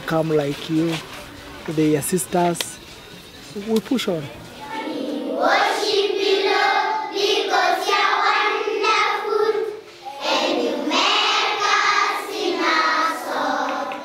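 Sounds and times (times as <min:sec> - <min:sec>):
children singing in chorus: 0:04.6 - 0:14.0.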